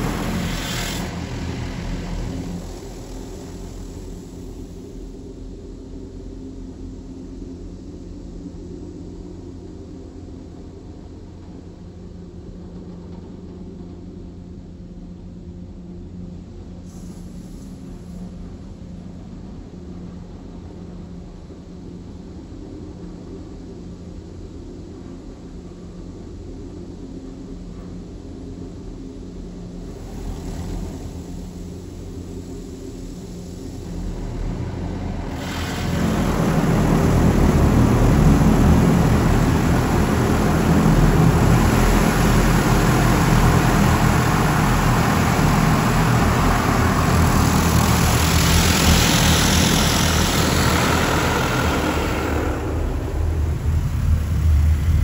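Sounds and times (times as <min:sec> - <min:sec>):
high-pressure water jets spraying car: 0:00.0 - 0:05.1, 0:29.8 - 0:32.4, 0:33.1 - 0:55.0
low steady hum: 0:17.5 - 0:55.0.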